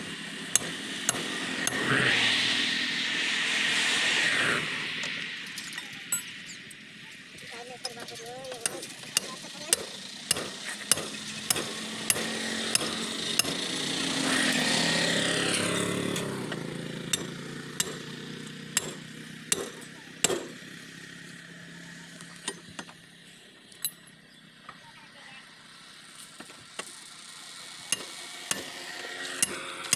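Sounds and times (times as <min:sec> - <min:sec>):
vehicle passing: 0:00.0 - 0:07.0, 0:09.8 - 0:19.5
hammer striking metal wheel rim: 0:08.6 - 0:13.6, 0:17.1 - 0:18.0, 0:18.8 - 0:20.6.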